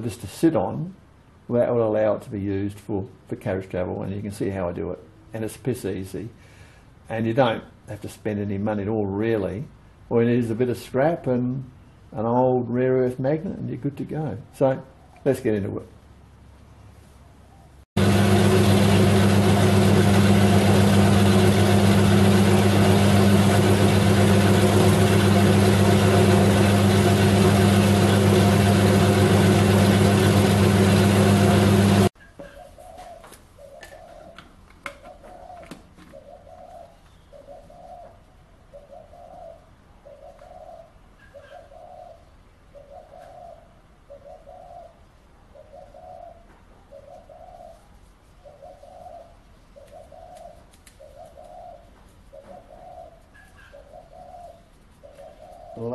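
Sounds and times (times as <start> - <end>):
bandsaw cutting metal: 18.1 - 32.1
dove cooing: 32.3 - 55.9.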